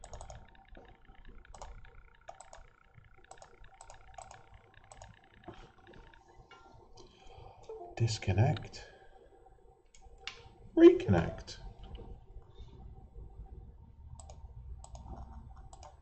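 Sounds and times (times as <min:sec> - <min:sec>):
computer keys clicking: 0:00.0 - 0:06.2, 0:14.2 - 0:16.0.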